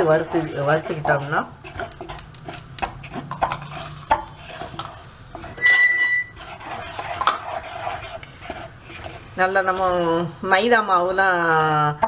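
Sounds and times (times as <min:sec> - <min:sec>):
spoon scraping a steel pan: 0:00.0 - 0:10.3
brief high squeal: 0:05.6 - 0:06.4.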